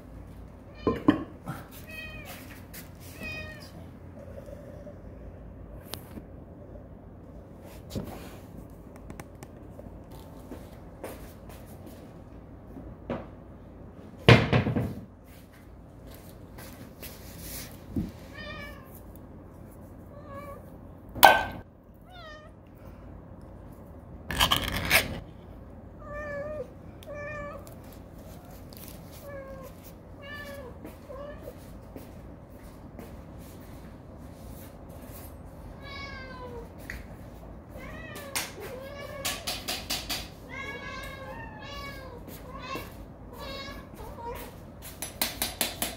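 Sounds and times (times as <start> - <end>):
cats meowing: 0.7 - 4.0, 18.2 - 19.1, 22.0 - 22.7, 26.0 - 31.7, 37.7 - 44.6
loud handling noises: 24.3 - 25.3.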